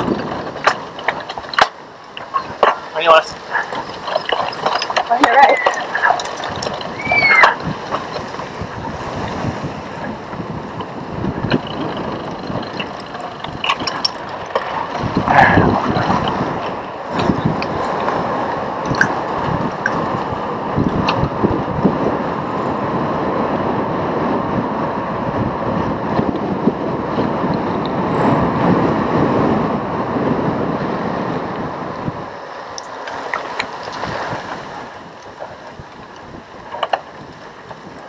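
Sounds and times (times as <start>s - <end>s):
sharp clicks and rattles: 0.0s - 8.9s, 10.6s - 18.2s
bike tyres rolling on pavement: 0.0s - 38.0s
wind on microphone: 0.0s - 38.0s.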